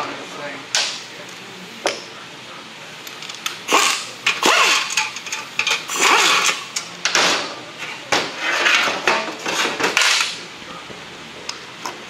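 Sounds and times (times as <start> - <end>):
impact wrench running: 3.2 - 6.9.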